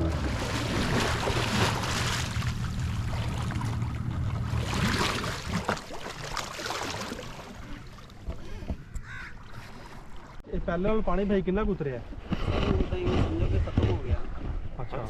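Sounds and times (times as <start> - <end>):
low hum: 0.0 - 6.0
water lapping at boat hull: 0.0 - 10.4.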